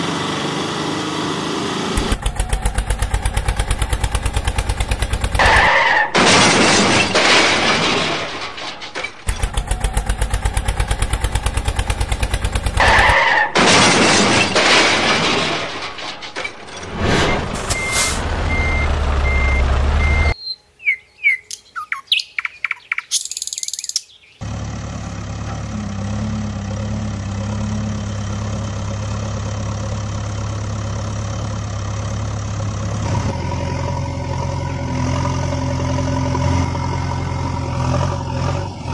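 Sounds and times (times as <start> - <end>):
engine idle hum: 0.0 - 5.7, 9.2 - 13.2, 24.4 - 38.9
fast-chugging engine: 2.1 - 5.6
birds chirping: 20.2 - 24.5.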